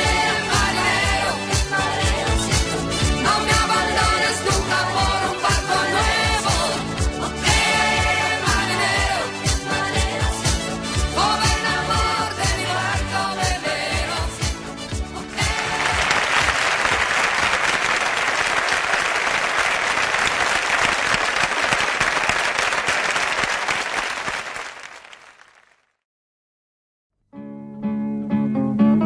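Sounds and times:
audience applauding: 15.3 - 25.9.

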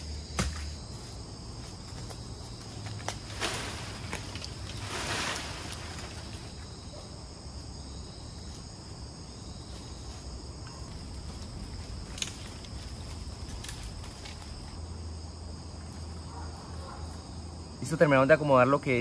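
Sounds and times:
insects chorus: 0.0 - 19.0.

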